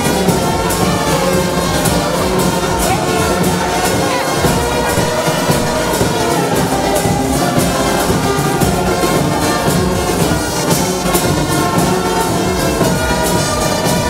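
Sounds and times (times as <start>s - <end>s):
brass band playing: 0.0s - 14.0s.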